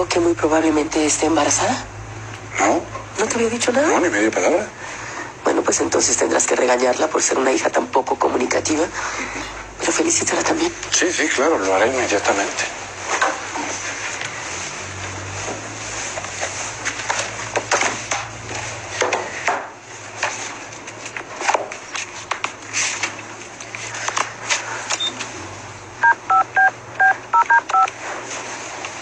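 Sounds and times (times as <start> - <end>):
paper pages rustling: 11.9 - 25.4
phone keypad touch-tone beeps: 26.0 - 27.9.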